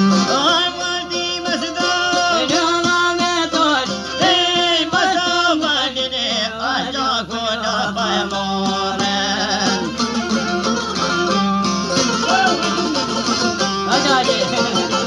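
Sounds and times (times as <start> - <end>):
violin melody: 0.0 - 4.6, 8.2 - 15.0
plucked lutes: 0.0 - 15.0.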